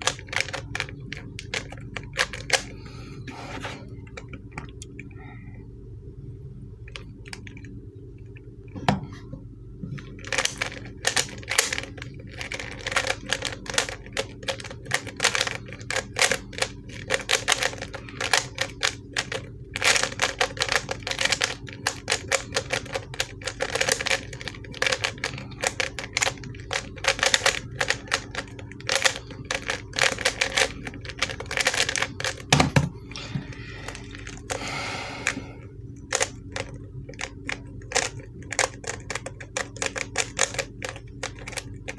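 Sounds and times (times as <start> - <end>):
puzzle cube clicking: 36.1 - 41.9.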